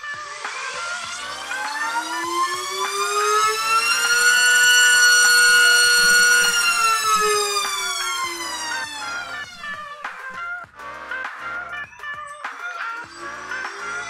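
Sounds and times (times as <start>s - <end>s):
motor and propeller whine: 0.0s - 10.0s, 13.0s - 14.0s.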